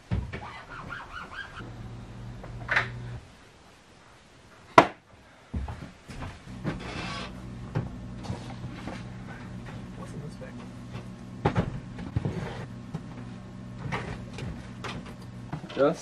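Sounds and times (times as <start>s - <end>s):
steady low hum: 1.5s - 4.0s, 5.6s - 15.8s
footsteps on wooden floor: 5.5s - 7.0s.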